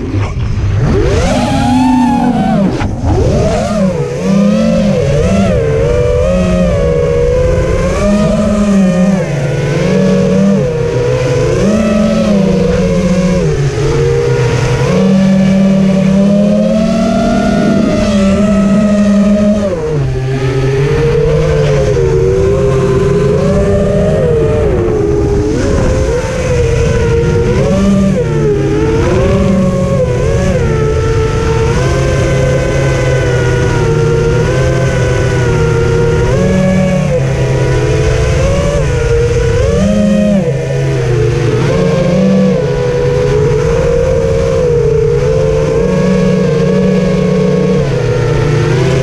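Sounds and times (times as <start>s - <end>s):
low rumble of rushing air: 0.0s - 9.7s
drone motors whining: 0.0s - 49.0s.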